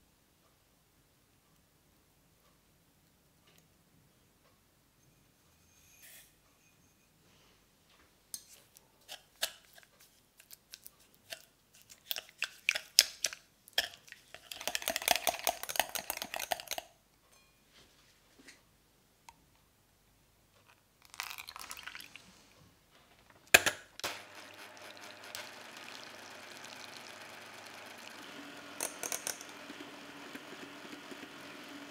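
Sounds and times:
fast whisking and scraping: 0:11.0 - 0:16.8.

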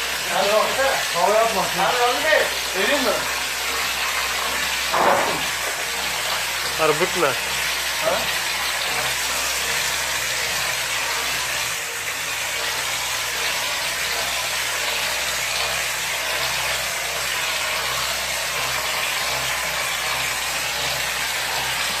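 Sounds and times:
plaster spray gun hissing: 0:00.0 - 0:22.0
spraying machine hum: 0:00.0 - 0:22.0.

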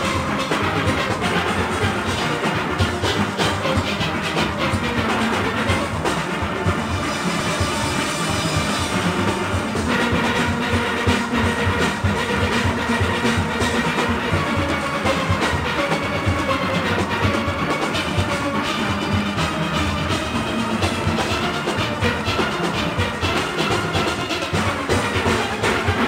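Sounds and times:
drum kit and percussion: 0:00.0 - 0:26.0
steelpans playing calypso: 0:00.0 - 0:26.0.

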